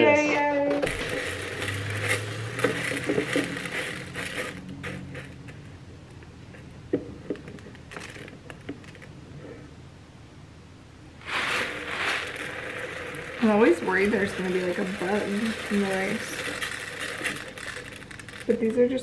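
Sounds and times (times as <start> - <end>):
rice grains pouring into container: 0.8 - 5.6, 11.2 - 19.0.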